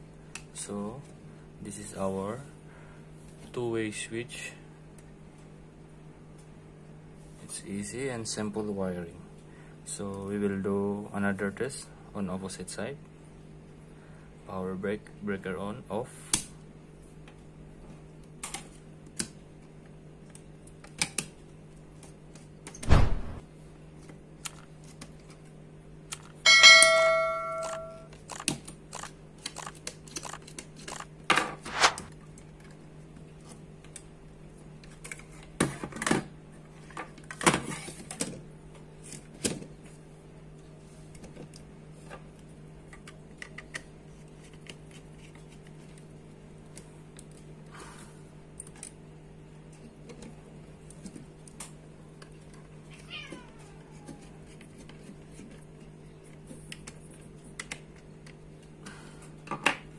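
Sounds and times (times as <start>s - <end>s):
steady low hum: 0.0s - 59.9s
thump: 22.8s - 23.4s
brief metallic ring: 26.5s - 28.1s.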